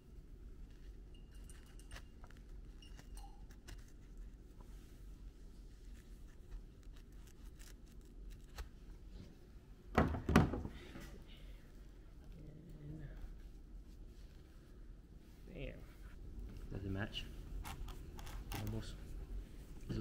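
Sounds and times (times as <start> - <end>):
pelt handling noise: 0.6 - 5.0.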